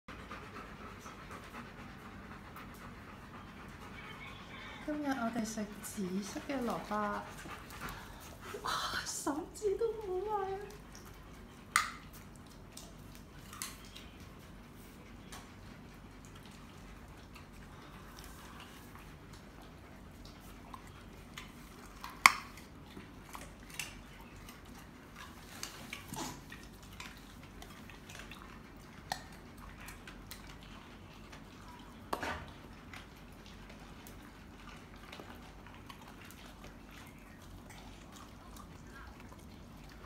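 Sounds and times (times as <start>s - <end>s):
dog crunching food: 16.2s - 40.0s.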